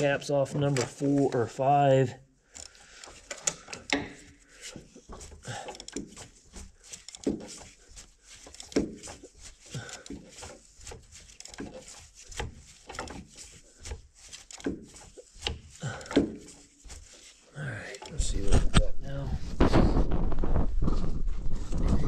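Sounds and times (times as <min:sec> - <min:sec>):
ratchet and hand tools clicking: 0:02.5 - 0:18.2.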